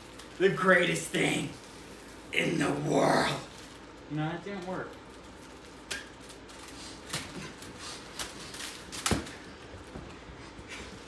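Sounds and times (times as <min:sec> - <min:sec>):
plastic wrapper crackling: 0:00.0 - 0:01.0, 0:03.4 - 0:09.5.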